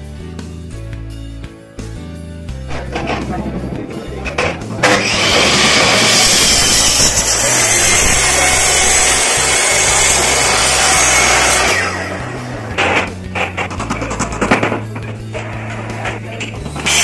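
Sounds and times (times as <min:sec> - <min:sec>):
mitre saw cutting wood: 0:04.4 - 0:14.3, 0:15.2 - 0:17.0.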